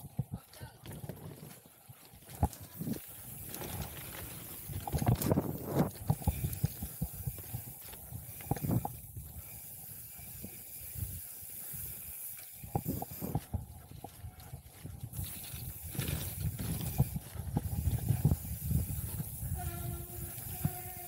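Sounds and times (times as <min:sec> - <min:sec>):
bike knocking and rattling: 0:00.0 - 0:21.0
bike tyres hissing on dirt: 0:02.2 - 0:21.0.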